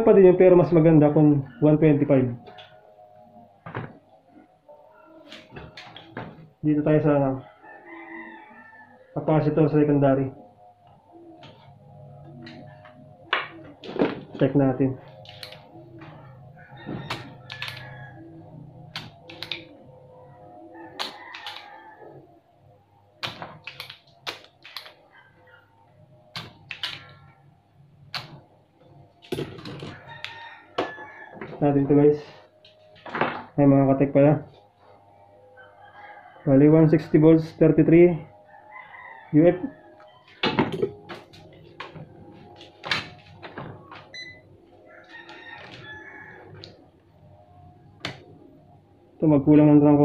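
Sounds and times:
multimeter probes clicking and tapping: 23.2s - 25.0s.

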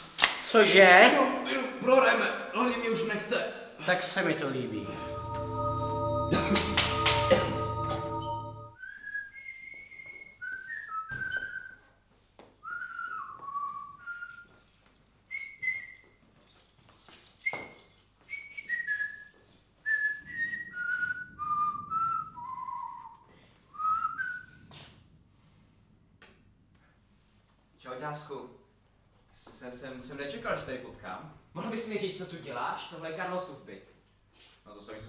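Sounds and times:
person whistling a tune: 4.8s - 11.8s, 12.6s - 14.6s, 15.3s - 16.1s, 17.4s - 24.6s.

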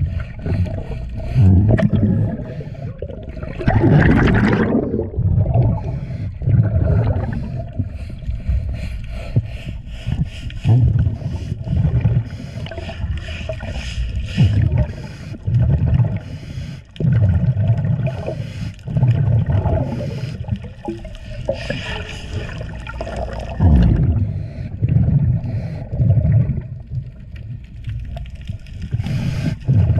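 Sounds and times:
air bubbles gurgling: 0.0s - 8.2s, 10.7s - 16.3s, 16.9s - 29.9s
underwater scrubbing of hull: 0.0s - 29.9s.

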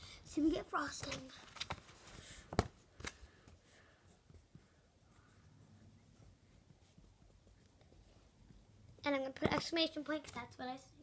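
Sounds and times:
marker writing on paper: 4.1s - 9.5s.

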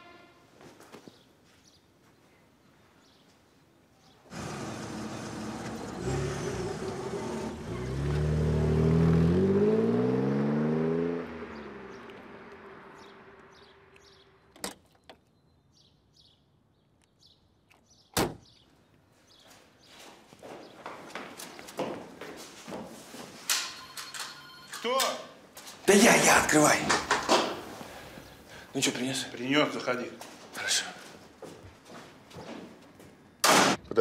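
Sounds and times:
car engine revving: 4.3s - 14.2s
sharp bang: 33.4s - 33.8s.

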